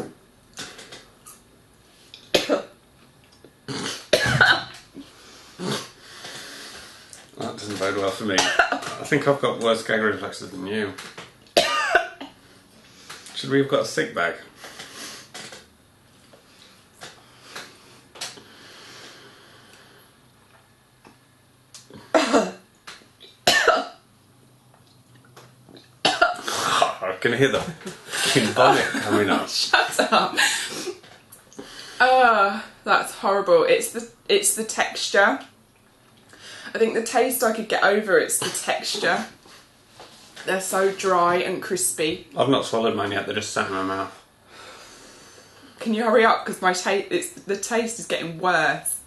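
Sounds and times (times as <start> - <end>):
woman gagging and coughing: 3.7 - 4.8, 8.4 - 9.0, 11.6 - 12.3, 22.1 - 22.6, 23.5 - 24.0, 26.0 - 27.1
soft breathing: 16.4 - 20.2, 36.3 - 36.8, 44.4 - 45.8.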